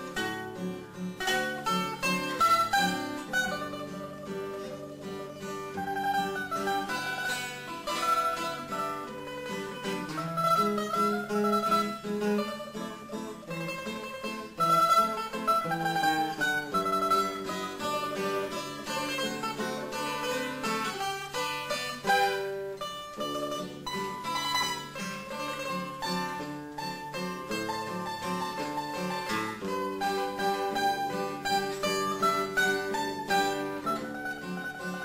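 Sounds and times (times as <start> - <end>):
acoustic guitar: 0.0 - 35.0
mandolin playing a waltz: 0.0 - 35.0.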